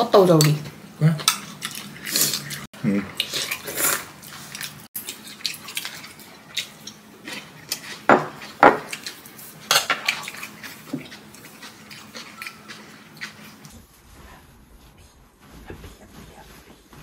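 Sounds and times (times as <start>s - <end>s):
utensils clinking against bowls: 9.7s - 11.1s.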